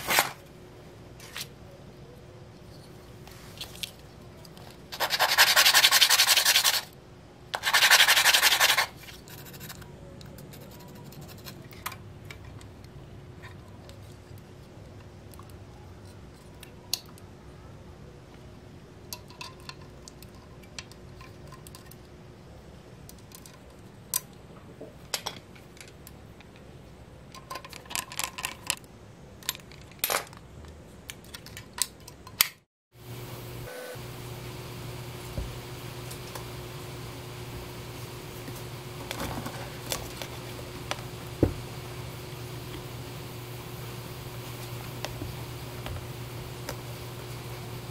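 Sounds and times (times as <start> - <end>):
sandpaper rasping: 5.0 - 6.9, 7.6 - 9.8.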